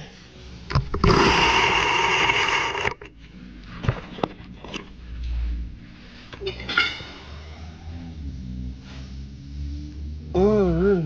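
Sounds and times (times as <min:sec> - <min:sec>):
power tool running: 0:00.9 - 0:03.1.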